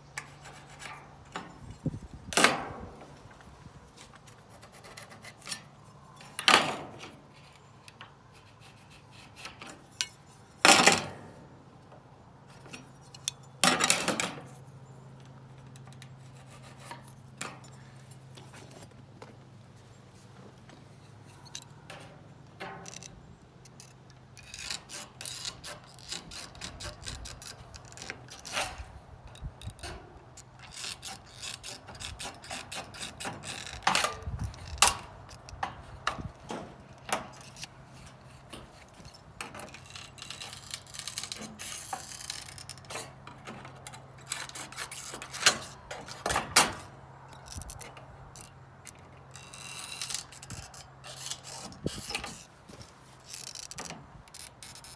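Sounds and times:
snips cutting sheet metal: 30.7s - 37.7s, 43.9s - 46.9s
sheet metal scraping and rattling: 49.4s - 54.9s.

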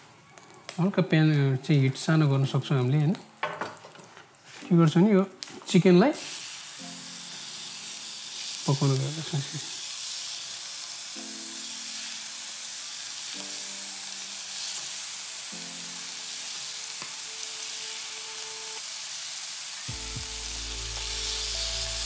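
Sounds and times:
chicken frying in oil: 6.2s - 22.0s.

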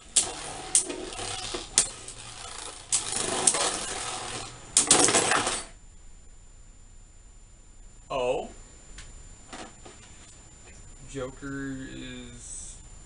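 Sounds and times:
spinning tops clacking: 0.0s - 5.7s
spinning tops whirring and scraping: 0.0s - 5.7s.

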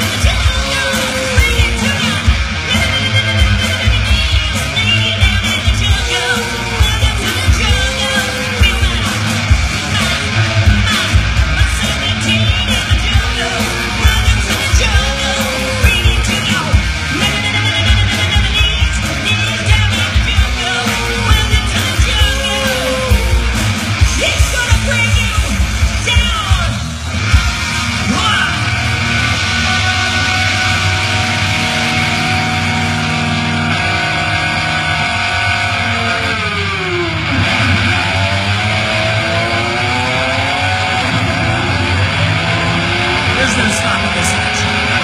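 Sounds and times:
live rock band: 0.0s - 45.0s
sustained electric guitar notes: 0.0s - 45.0s
shouted singing: 28.1s - 36.4s.

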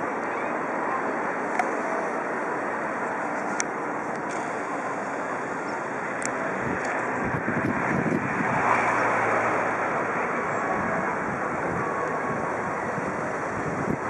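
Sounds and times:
outdoor rushing noise: 0.0s - 14.0s
wind buffeting microphone: 3.3s - 14.0s.

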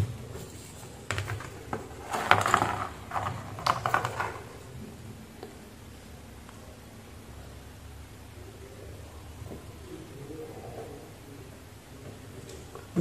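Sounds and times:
wires being handled: 0.3s - 4.7s.

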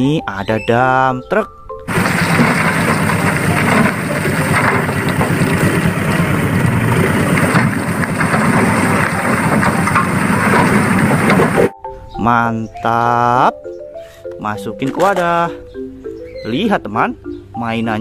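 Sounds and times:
diesel engine running under load: 1.9s - 11.7s
soil dumping from truck bed: 1.9s - 11.7s.

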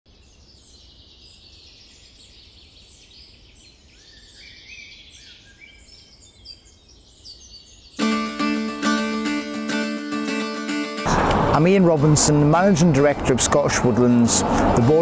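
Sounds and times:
songbirds singing: 0.1s - 8.0s
plucked acoustic guitar music: 8.0s - 13.2s.

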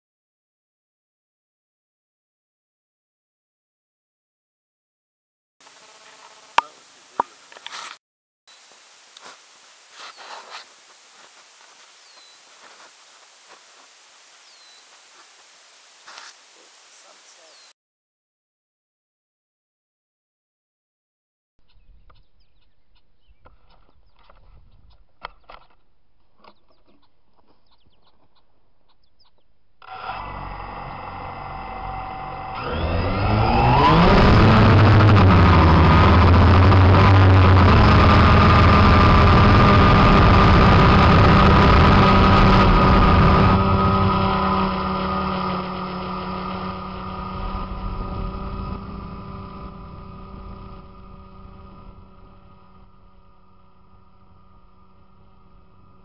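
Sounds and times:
drone motors whining: 5.6s - 7.9s, 8.5s - 17.7s, 29.8s - 56.0s.

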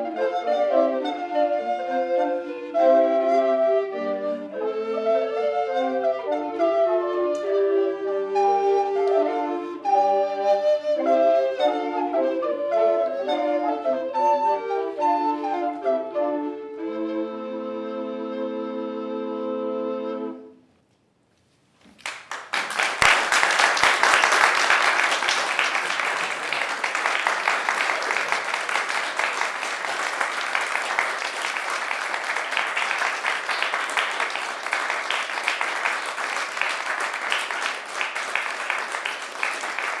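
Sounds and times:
audience applause: 22.0s - 40.0s.

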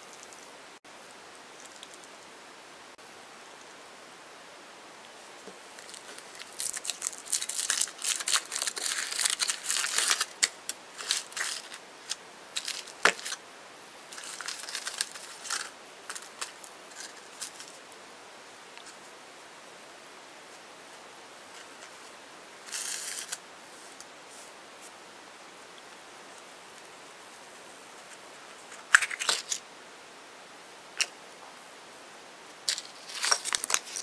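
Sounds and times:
small crackles of foil: 5.7s - 13.4s, 14.1s - 17.8s, 21.6s - 23.4s, 28.0s - 29.6s, 32.7s - 34.0s
foil wrapper crinkling and tearing: 5.8s - 13.4s, 14.2s - 17.8s, 28.8s - 29.6s, 32.7s - 34.0s.

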